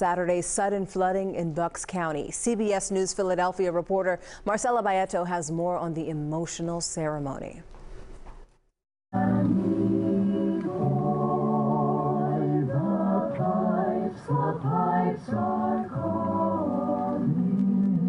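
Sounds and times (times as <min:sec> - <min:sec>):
choir singing unaccompanied: 0:09.2 - 0:18.0.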